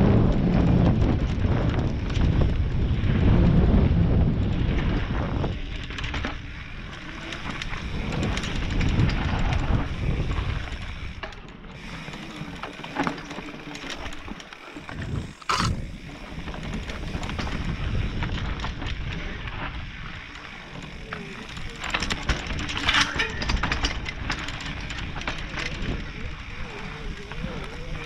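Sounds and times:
wind on microphone: 0.0 - 6.2, 14.8 - 20.3
bike rattling and clicking: 0.0 - 28.0
tyres rumbling over roots: 11.8 - 23.0.

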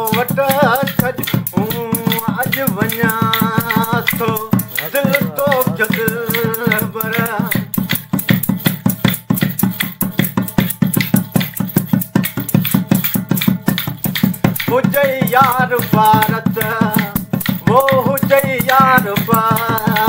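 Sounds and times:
man singing folk song: 0.0 - 7.8, 14.6 - 20.0
low beat: 0.0 - 20.0
wooden clappers clacking: 0.0 - 20.0.

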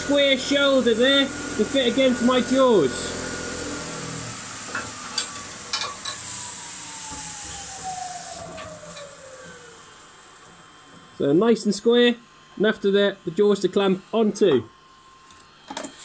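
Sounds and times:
lathe motor whine winding down: 0.0 - 16.0.

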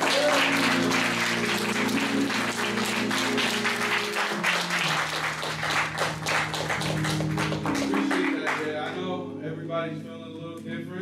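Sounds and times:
congregation applauding: 0.0 - 9.1
background music sustained chords: 0.0 - 11.0.

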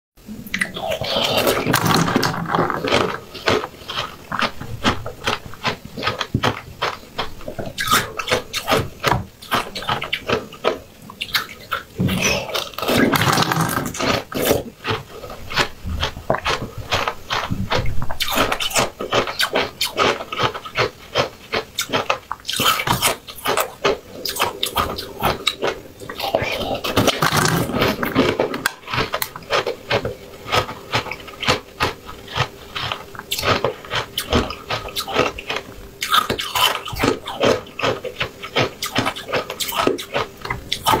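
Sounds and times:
mouth smacking clicks: 0.4 - 3.0
wet chewing and squishing: 0.5 - 41.0.

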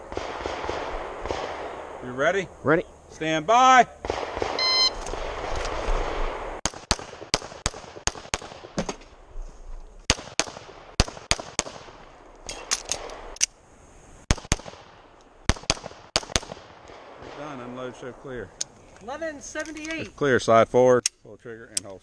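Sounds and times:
pistol shots: 0.0 - 2.0, 4.0 - 8.9, 10.1 - 13.3, 14.3 - 17.9
shot timer beep: 4.6 - 5.0.

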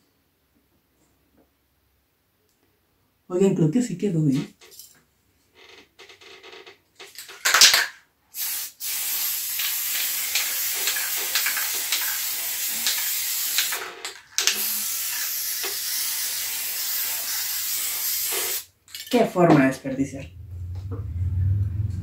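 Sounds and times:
aerosol spray can hissing: 8.4 - 18.7.

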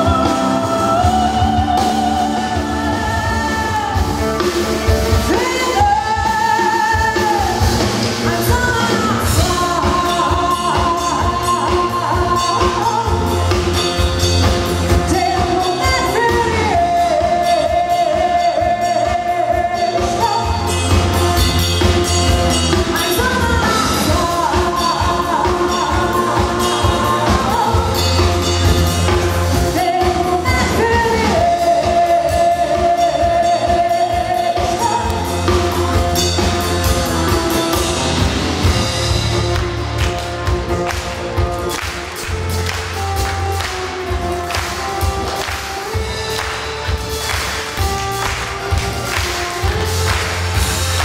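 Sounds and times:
woman singing: 0.0 - 39.6
drum kit: 0.0 - 51.0
electric bass: 0.0 - 51.0.

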